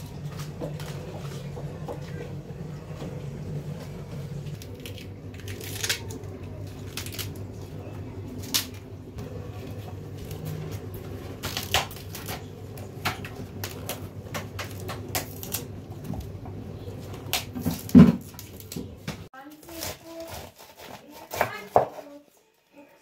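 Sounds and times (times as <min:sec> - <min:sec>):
low hum: 0:00.0 - 0:17.4.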